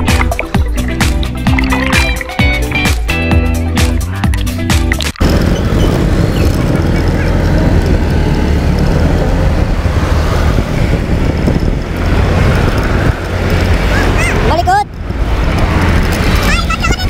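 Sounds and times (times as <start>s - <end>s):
scooter engine: 5.2s - 17.0s
wind rushing over microphone: 5.2s - 17.0s.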